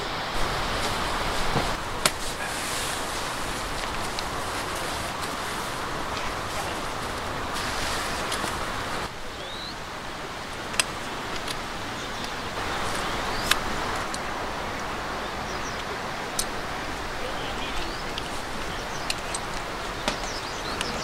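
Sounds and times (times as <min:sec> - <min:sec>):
outdoor background rush: 0:00.0 - 0:21.0
high bird chirps: 0:09.4 - 0:09.8, 0:17.6 - 0:21.0.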